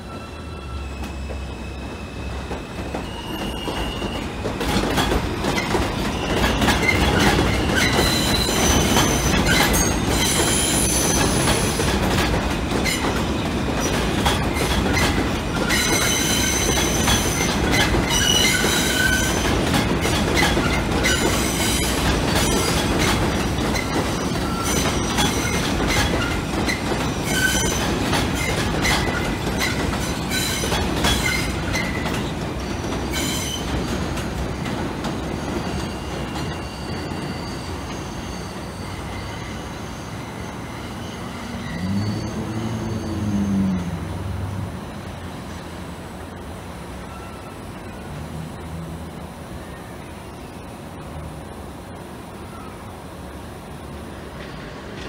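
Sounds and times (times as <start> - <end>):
subway wheels squealing: 0.0 - 55.0
train rumble: 0.0 - 55.0
clattering over rail joints: 2.5 - 36.6.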